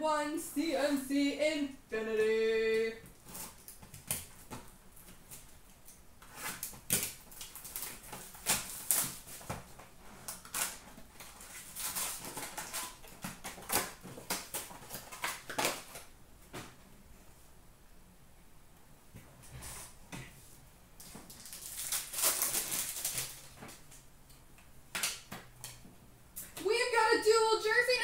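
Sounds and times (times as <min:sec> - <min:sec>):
cardboard and foil wrappers rustling: 0:03.1 - 0:05.6, 0:06.3 - 0:16.1, 0:21.0 - 0:23.9.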